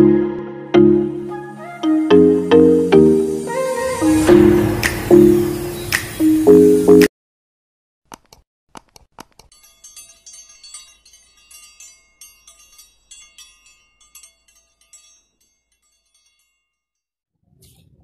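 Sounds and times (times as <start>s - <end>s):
tinkling wind chimes: 9.5s - 17.2s.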